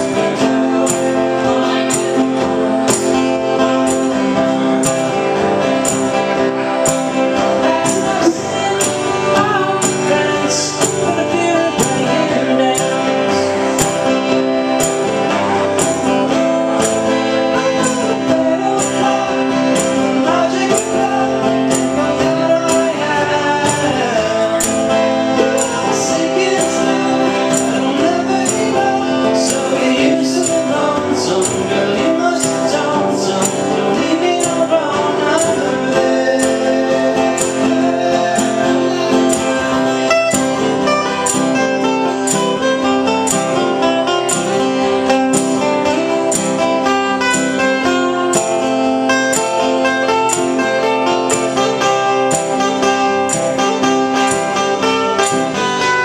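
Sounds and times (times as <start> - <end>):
man singing: 0.0 - 48.4
jingling percussion beat: 0.0 - 56.0
strummed acoustic guitar: 0.0 - 56.0.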